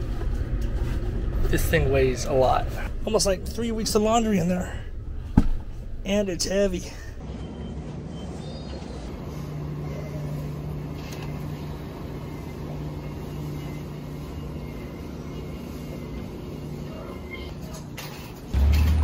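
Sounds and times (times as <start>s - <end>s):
low motor hum: 0.0s - 17.3s.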